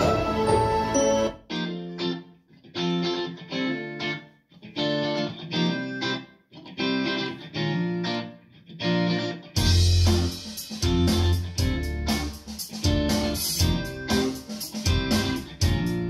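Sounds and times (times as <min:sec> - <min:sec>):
guitar chords ringing: 0:00.0 - 0:16.0
full band with heavy bass: 0:09.6 - 0:16.0.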